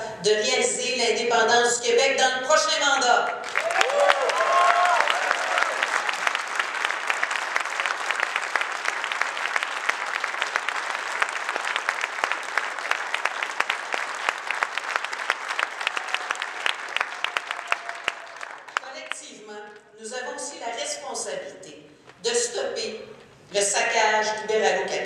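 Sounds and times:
audience applauding: 3.4s - 19.2s.

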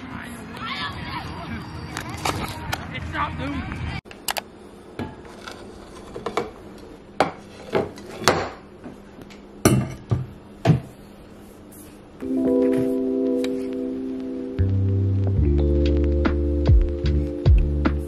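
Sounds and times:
background music: 12.2s - 18.0s.

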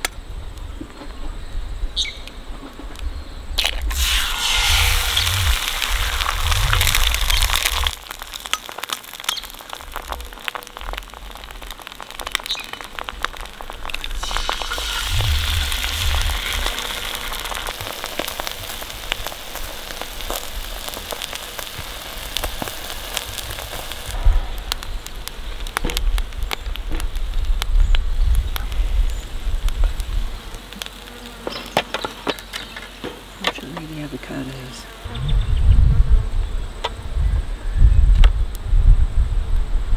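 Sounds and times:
crackles and pops: 2.0s - 34.6s, 37.8s - 39.7s
eggs sizzling in a skillet: 3.6s - 34.9s
low rumbling: 3.9s - 8.6s, 13.0s - 21.4s, 35.0s - 39.9s.

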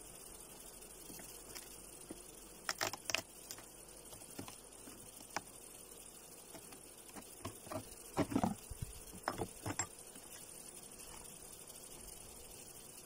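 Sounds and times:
small clicks: 1.1s - 5.6s
wooden frames knocking and scraping: 6.5s - 9.9s.

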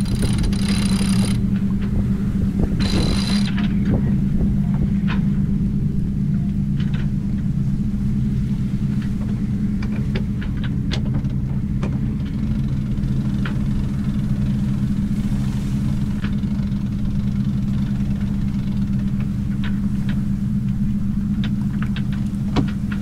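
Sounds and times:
diesel engine running: 0.0s - 23.0s.

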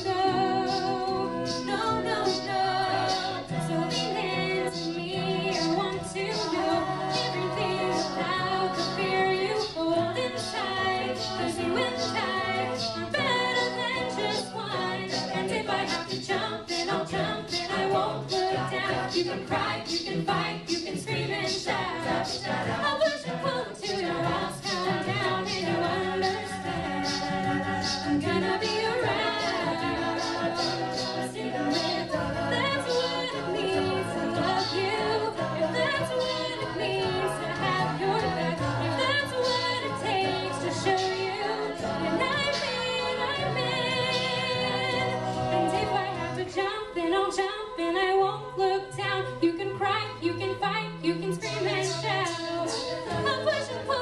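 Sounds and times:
a cappella group singing: 0.0s - 54.0s
sharp percussive strokes: 0.6s - 4.2s, 23.8s - 35.0s.

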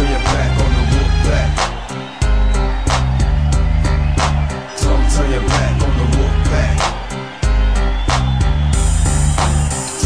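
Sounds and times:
hip-hop beat with heavy bass: 0.0s - 10.0s.

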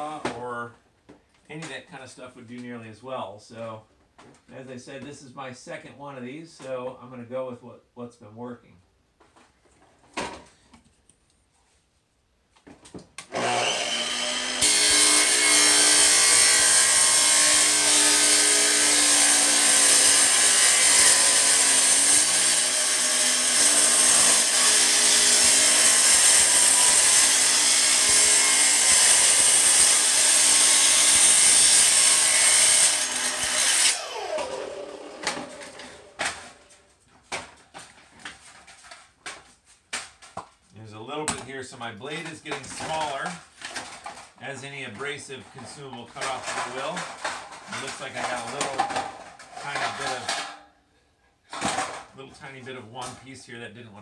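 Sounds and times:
saw grinding through metal: 13.3s - 36.5s, 45.7s - 50.6s
saw motor winding down whine: 33.9s - 36.1s.

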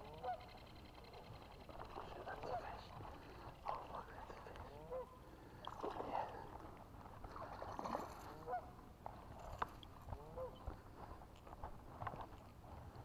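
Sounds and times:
waterfowl honking: 0.0s - 1.2s, 2.0s - 2.9s, 4.7s - 5.2s, 8.4s - 8.8s, 10.2s - 10.6s
fish splashing in water: 7.2s - 8.4s.

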